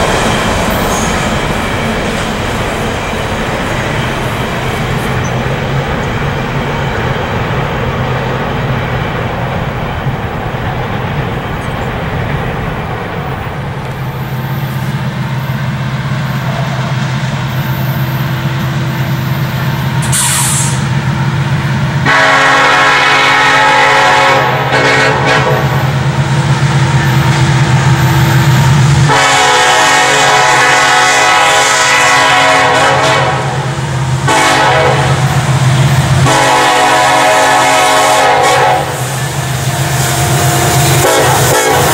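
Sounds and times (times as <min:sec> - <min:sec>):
diesel locomotive engine running: 0:00.0 - 0:41.9
freight train rumbling on tracks: 0:00.0 - 0:41.9
train air horn blasts: 0:22.0 - 0:26.0, 0:29.0 - 0:35.4, 0:36.1 - 0:41.9.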